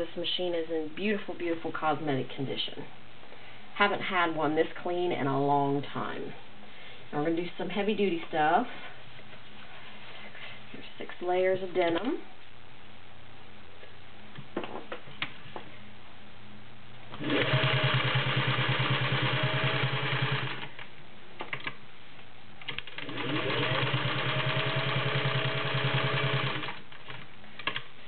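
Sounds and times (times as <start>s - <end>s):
sewing machine stitching: 17.2s - 20.7s, 22.7s - 26.8s.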